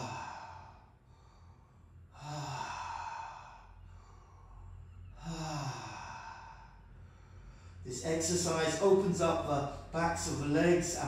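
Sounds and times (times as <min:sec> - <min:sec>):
man breathing deeply through mouth: 0:00.0 - 0:07.9.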